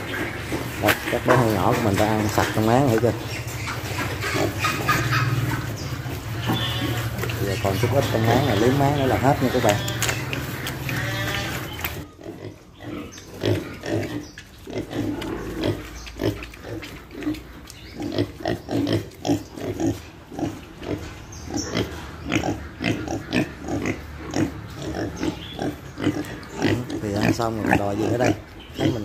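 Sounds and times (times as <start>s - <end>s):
piglets grunting: 0.0s - 29.0s.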